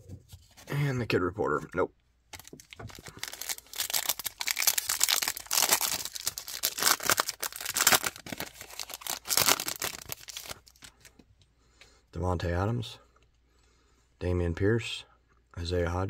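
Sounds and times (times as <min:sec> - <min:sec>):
foil wrapper crinkling and tearing: 0:02.3 - 0:11.1.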